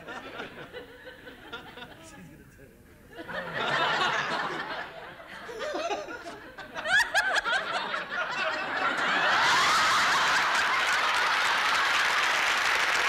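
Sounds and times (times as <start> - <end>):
audience laughter and applause: 0.0 - 2.0, 3.2 - 13.0
man chuckling: 5.4 - 6.4.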